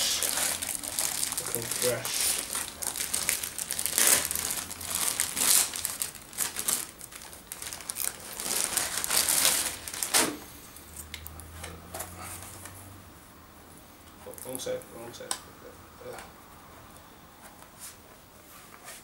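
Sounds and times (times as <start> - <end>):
plastic bag crinkling and rustling: 0.0 - 10.4.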